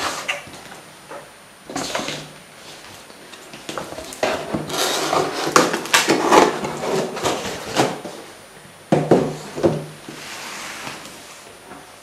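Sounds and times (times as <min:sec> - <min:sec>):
cardboard rubbing and scraping: 0:04.1 - 0:08.2.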